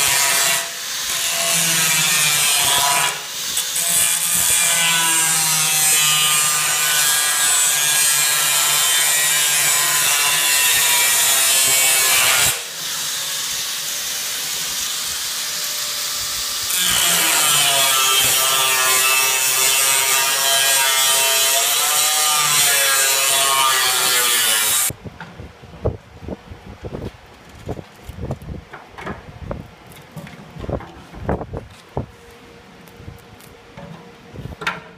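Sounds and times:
angle grinder cutting steel: 0:00.0 - 0:24.9.

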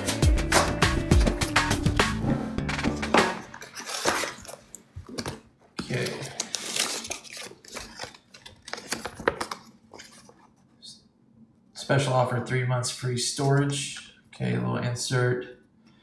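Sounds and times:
paper rustling and crinkling: 0:03.5 - 0:10.6.

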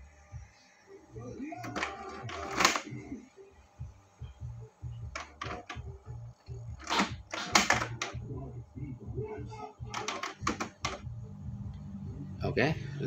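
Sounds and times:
printer motor whirring: 0:01.3 - 0:08.4, 0:09.2 - 0:11.3
printer mechanism clicking: 0:01.6 - 0:02.9, 0:05.1 - 0:05.8, 0:06.8 - 0:08.2, 0:09.9 - 0:11.0.

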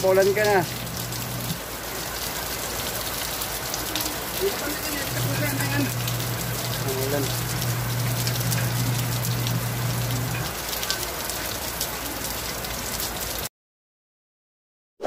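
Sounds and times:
heavy rain pouring on concrete: 0:00.0 - 0:13.5
low steady hum: 0:00.2 - 0:01.6, 0:04.8 - 0:10.5.

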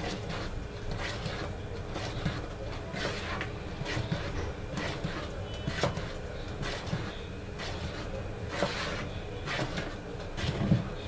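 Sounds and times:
wooden spoon stirring batter in bowl: 0:00.0 - 0:11.0.

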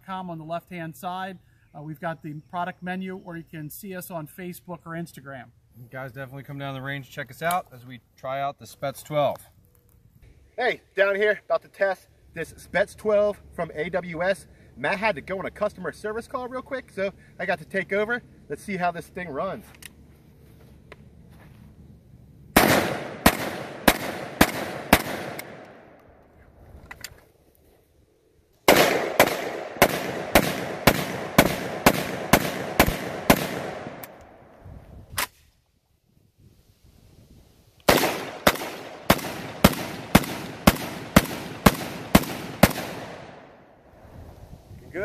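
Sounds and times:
shotgun firing: 0:22.6 - 0:25.9, 0:28.7 - 0:34.2, 0:37.9 - 0:43.5.

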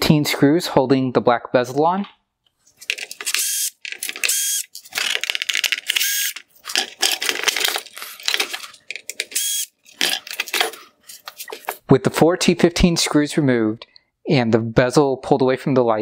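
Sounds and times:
screws and plastic rattling: 0:02.8 - 0:11.8
cordless drill whining: 0:03.3 - 0:04.7, 0:05.9 - 0:06.4, 0:09.4 - 0:09.7.

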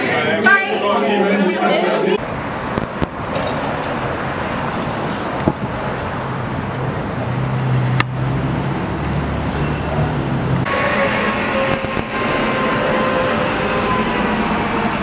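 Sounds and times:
road noise: 0:00.0 - 0:15.0
vehicle engine droning: 0:02.2 - 0:15.0.

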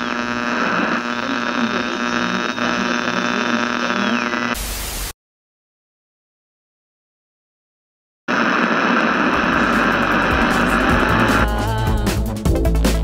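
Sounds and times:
electrical buzzing hum: 0:00.0 - 0:05.1, 0:08.3 - 0:12.1
tv static hiss: 0:00.0 - 0:05.2, 0:08.3 - 0:11.9.

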